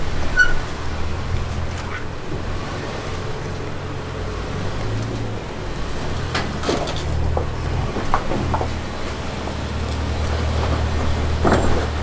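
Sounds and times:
car engine at low revs: 0.0 - 12.0
short squeaks: 0.3 - 0.7.

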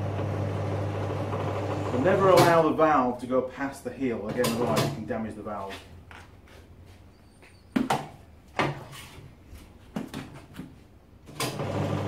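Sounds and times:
steady machine hum: 0.0 - 2.4.

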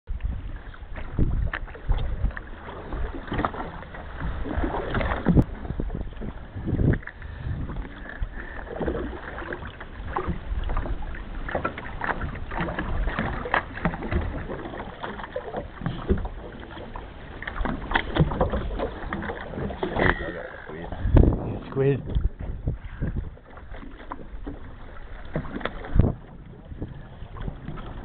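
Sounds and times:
wind rumble: 0.1 - 14.9, 17.3 - 28.0
water slapping against boat hull: 0.1 - 28.0.

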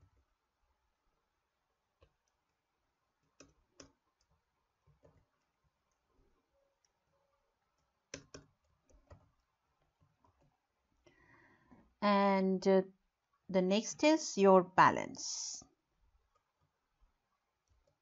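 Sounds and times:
keyboard and mouse clicks: 3.2 - 6.1, 7.8 - 10.6.

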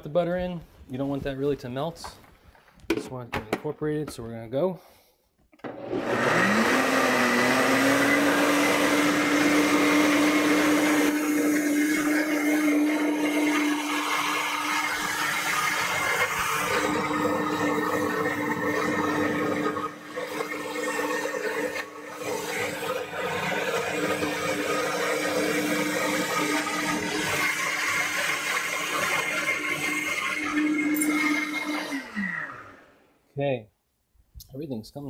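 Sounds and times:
blender motor whining: 5.6 - 33.1
liquid whirling: 5.7 - 33.0.

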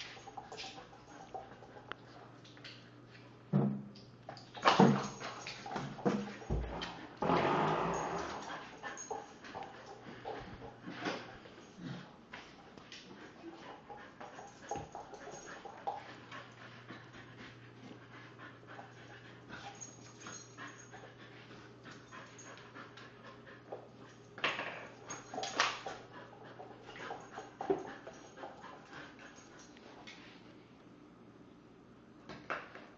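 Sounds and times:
dog whimpering and panting: 5.6 - 12.1, 13.2 - 24.3.

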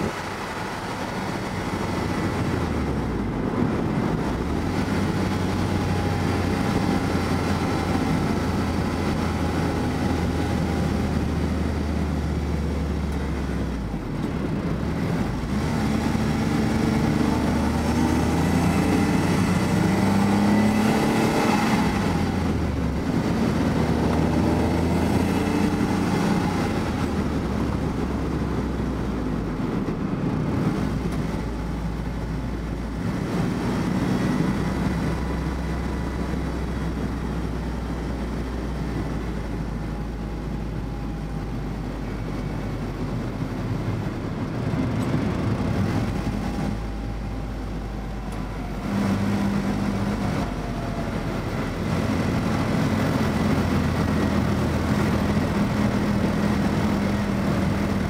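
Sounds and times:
car engine: 0.0 - 58.0
road noise: 0.0 - 58.0.

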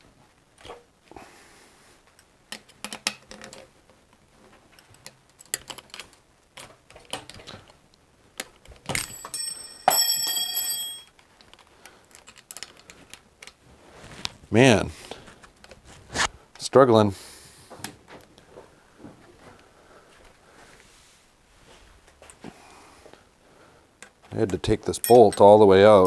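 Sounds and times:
metal tools clicking and knocking: 8.9 - 11.1, 24.6 - 26.0
sharp ringing metallic hits: 9.0 - 11.1.

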